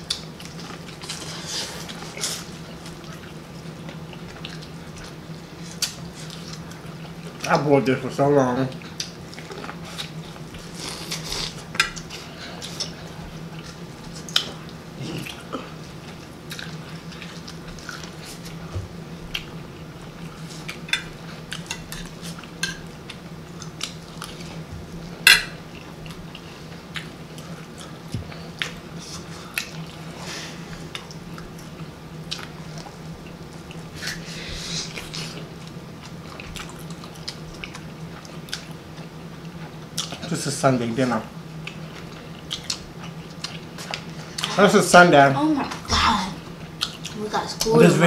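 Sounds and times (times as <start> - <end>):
steady low hum: 0.0 - 48.0
biting and chewing food: 41.6 - 44.6.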